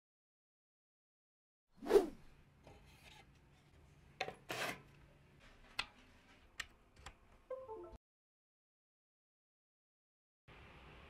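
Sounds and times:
swish: 1.8 - 2.2.

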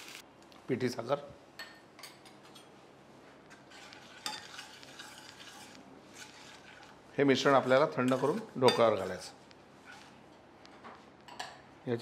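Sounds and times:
metal spoon stirring in a pan: 3.5 - 10.3.

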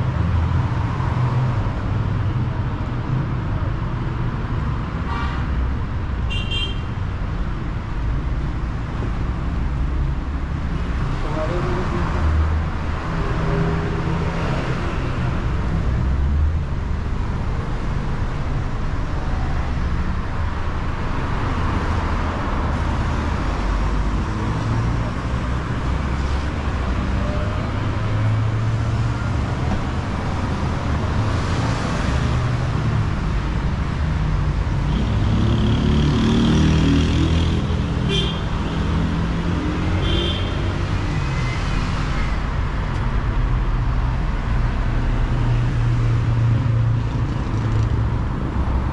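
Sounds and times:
cars driving past: 20.0 - 48.9.

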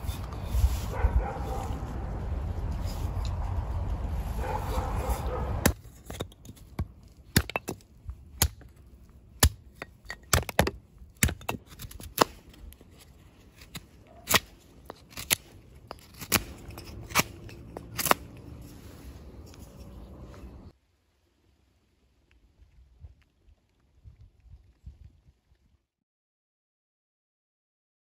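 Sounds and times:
hatchet splitting wood: 5.6 - 8.8, 9.4 - 18.6.

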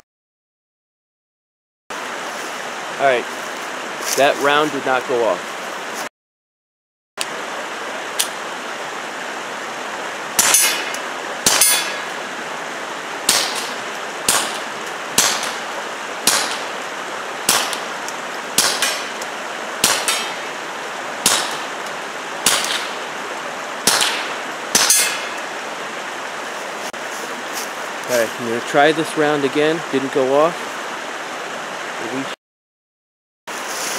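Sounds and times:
suppressed pistol shots: 13.3 - 15.6, 16.2 - 16.7, 18.6 - 19.2, 19.8 - 20.4, 22.4 - 23.0, 23.8 - 25.3.

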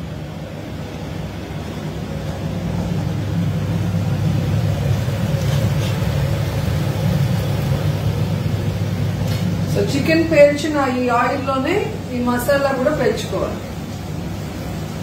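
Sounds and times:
hood fan rumble: 0.0 - 15.0.

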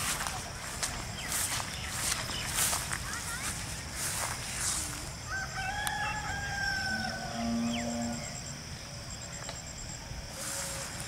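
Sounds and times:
rooster crowing: 5.2 - 8.4.

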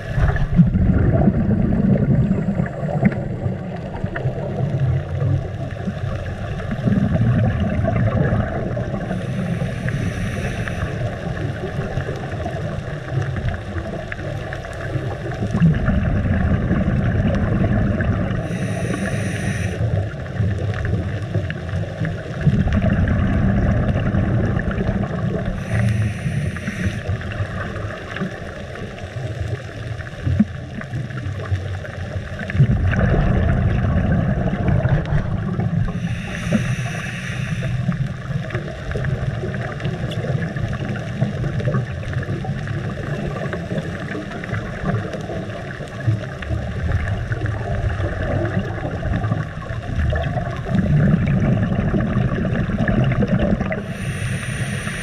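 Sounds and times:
exhaled bubbles bubbling: 0.0 - 55.0
regulator inhalation hiss: 9.0 - 11.3, 18.4 - 19.9, 25.4 - 27.2, 35.9 - 38.1, 53.8 - 55.0.

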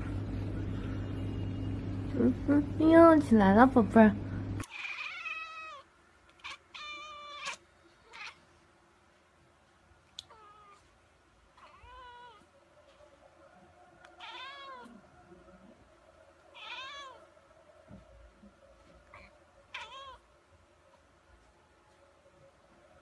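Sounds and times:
kitten meowing: 4.6 - 5.8, 6.4 - 8.4, 14.2 - 14.9, 16.6 - 17.2, 19.1 - 20.2.

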